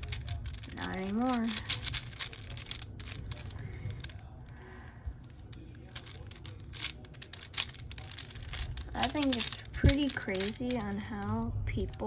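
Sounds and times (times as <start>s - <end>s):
speed cube clicking: 0.0s - 4.2s, 5.5s - 11.0s.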